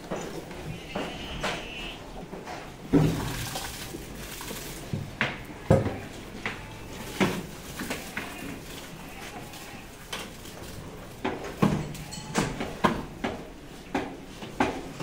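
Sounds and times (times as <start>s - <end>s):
plastic tub knocking on trough: 2.9s - 4.4s
feed pouring: 2.9s - 5.4s.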